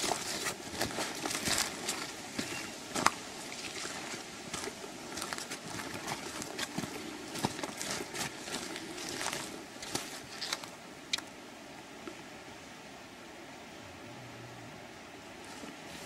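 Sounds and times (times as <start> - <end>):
footsteps crunching through leaves: 0.0 - 10.7.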